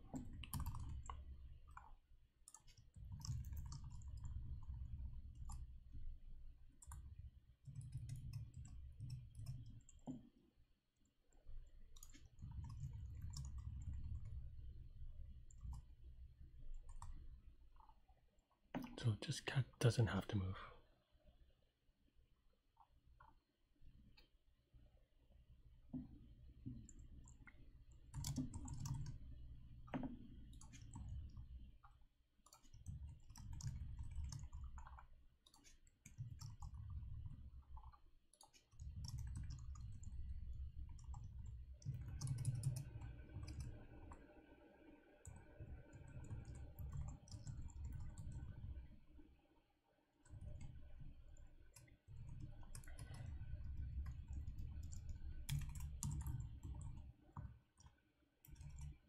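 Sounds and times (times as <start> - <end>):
computer keyboard typing: 0.0 - 1.9, 2.5 - 5.7, 6.8 - 10.3, 11.9 - 14.4, 28.0 - 29.2, 30.0 - 31.4, 32.4 - 44.1, 45.2 - 48.7, 50.2 - 59.0.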